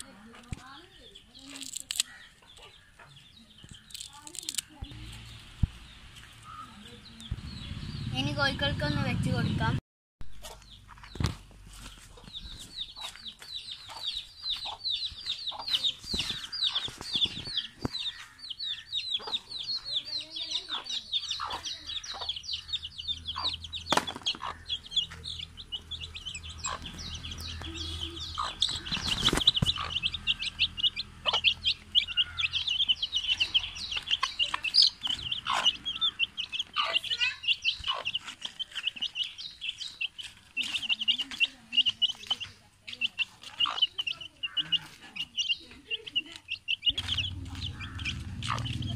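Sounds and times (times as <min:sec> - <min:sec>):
chicks peeping: 0:00.0 - 0:09.8, 0:10.4 - 0:48.9
hen clucking: 0:11.8 - 0:48.9.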